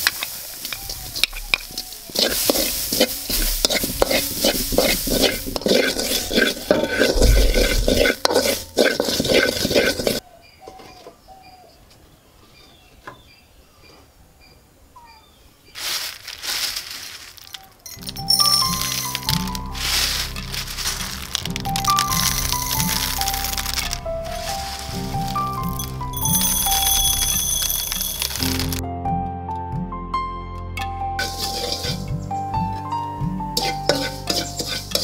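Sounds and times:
ginger sizzling in a pan: 0:00.0 - 0:10.2, 0:18.2 - 0:28.8, 0:31.2 - 0:32.1, 0:33.6 - 0:35.0
spatula scraping a pan: 0:01.2 - 0:10.2, 0:31.2 - 0:32.1, 0:33.6 - 0:35.0.

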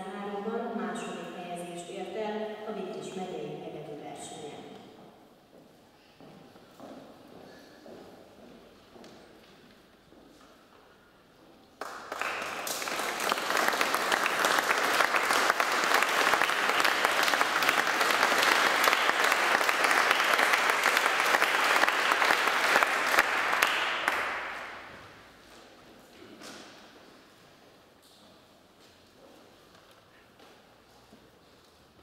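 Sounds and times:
audience applauding: 0:11.8 - 0:25.1.

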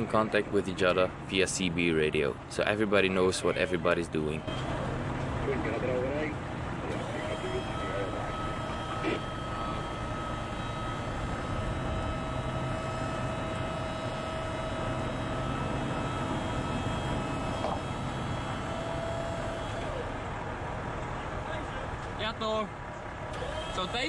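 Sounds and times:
road and wind noise: 0:00.0 - 0:24.0
truck diesel engine running: 0:00.0 - 0:24.0.

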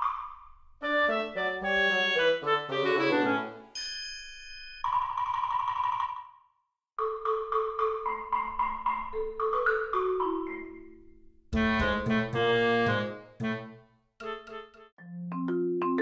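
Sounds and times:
high chime: 0:03.7 - 0:05.0.

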